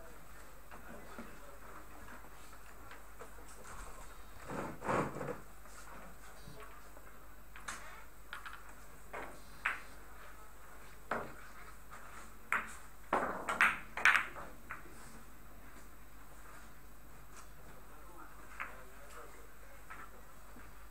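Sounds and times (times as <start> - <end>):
billiard balls clicking: 7.5 - 10.0, 12.5 - 14.9.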